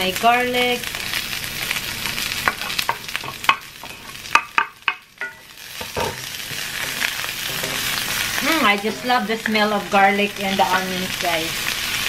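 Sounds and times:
onions and garlic sizzling in oil: 0.0 - 12.0
wooden spatula stirring in pan: 2.4 - 11.2.

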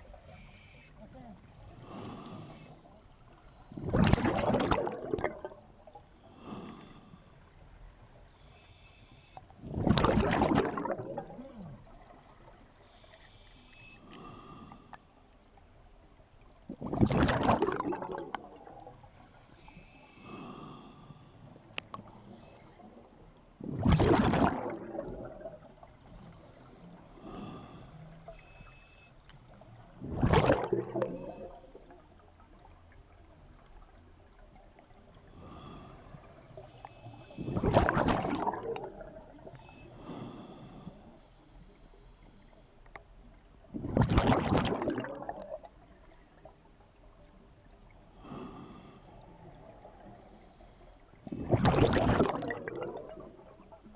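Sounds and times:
exhaled bubbles rushing: 3.8 - 5.7, 9.6 - 11.9, 16.7 - 19.0, 23.6 - 25.8, 30.0 - 31.9, 37.4 - 39.5, 43.7 - 45.7, 51.2 - 53.8.

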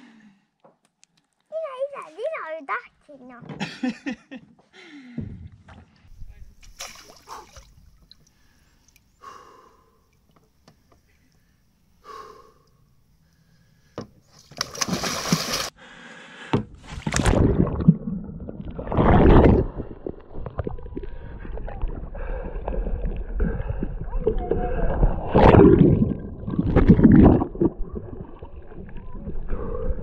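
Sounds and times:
water churning and sloshing: 5.5 - 11.4, 14.0 - 15.8, 16.7 - 30.0
paddle splashes: 5.7 - 9.0, 14.3 - 15.7
kayak splashing into water: 6.6 - 7.9, 14.5 - 15.7, 16.8 - 21.0.

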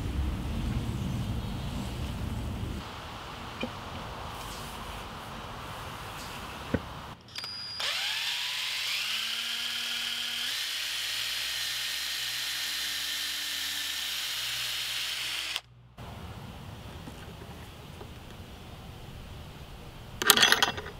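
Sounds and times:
electric drill boring into wood: 7.3 - 15.7.

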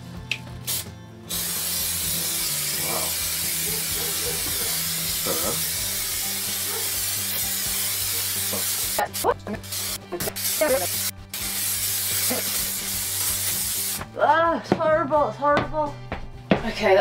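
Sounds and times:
aerosol can spraying hiss: 0.6 - 14.1.

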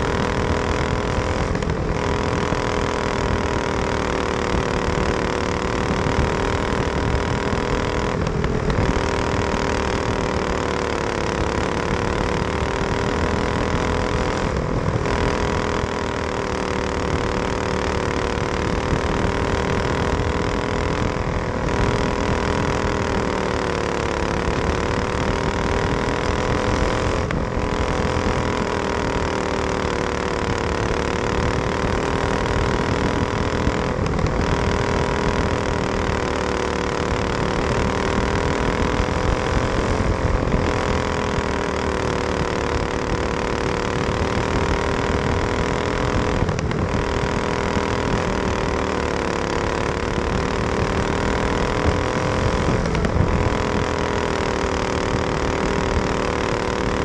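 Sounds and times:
kart engine running hard: 0.0 - 57.0.

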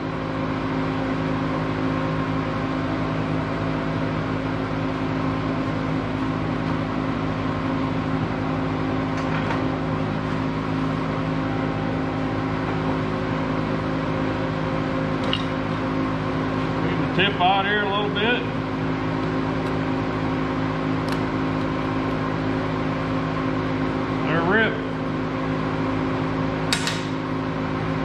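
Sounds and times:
electrical machinery hum: 0.0 - 28.0.

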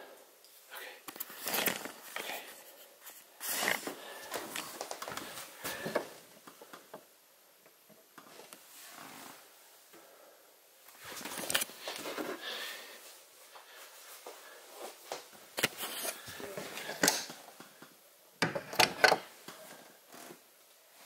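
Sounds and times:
rustling handling noise: 1.1 - 6.9, 10.9 - 17.8.

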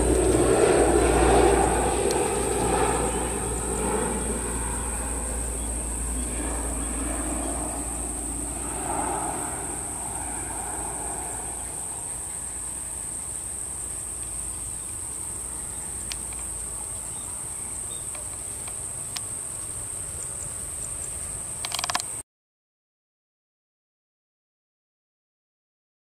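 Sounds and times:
insect chorus: 0.0 - 22.2
turboprop aircraft engines droning: 0.0 - 22.2
faint clicks: 21.6 - 22.2.

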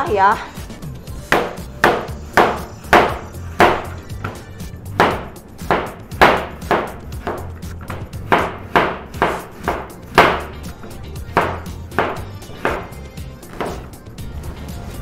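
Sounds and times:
knife knocking on cutting board: 11.4 - 13.8.

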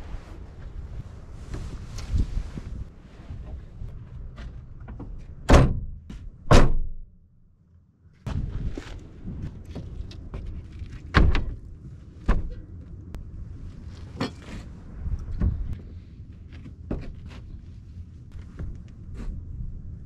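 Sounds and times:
wind noise: 0.0 - 5.8, 8.2 - 16.2
van doors slamming: 5.4 - 7.0.

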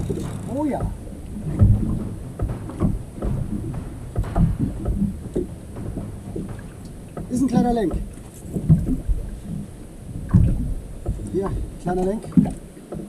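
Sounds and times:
water slapping boat hull: 0.0 - 13.0.

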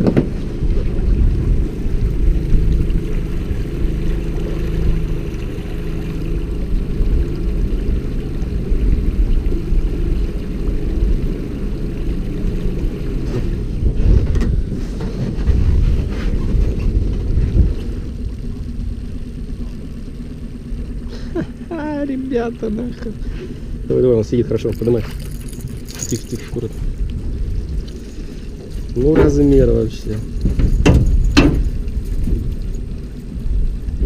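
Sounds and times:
wind buffeting microphone: 0.0 - 19.6, 22.5 - 34.0
outboard motor running: 0.0 - 34.0.

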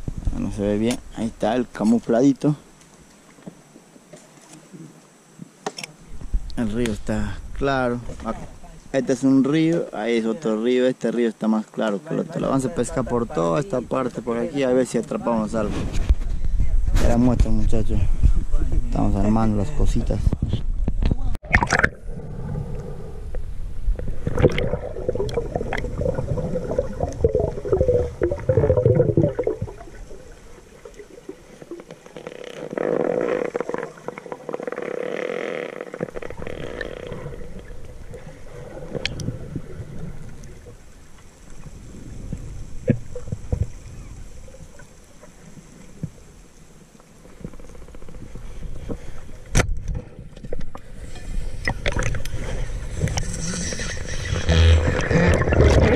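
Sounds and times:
underwater gurgling water: 21.4 - 34.8, 35.8 - 55.9
underwater clicks and knocks: 51.6 - 52.4.

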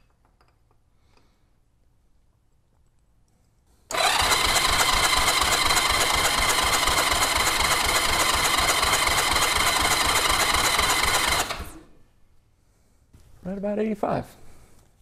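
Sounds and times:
electric starter cranking engine: 3.9 - 11.9.

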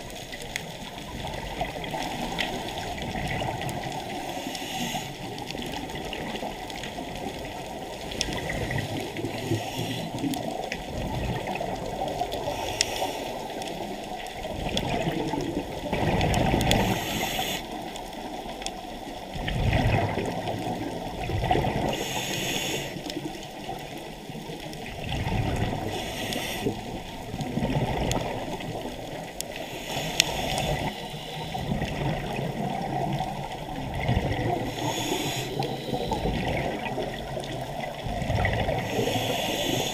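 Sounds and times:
underwater regulator breathing bubbles: 8.2 - 10.5, 15.9 - 17.8, 21.4 - 23.2, 25.2 - 28.8, 29.4 - 33.0, 34.0 - 37.4, 38.1 - 39.9.

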